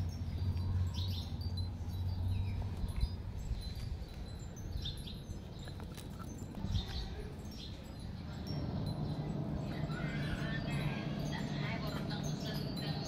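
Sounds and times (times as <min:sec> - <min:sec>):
small birds chirping: 0:00.0 - 0:13.0
low rumble: 0:06.4 - 0:13.0.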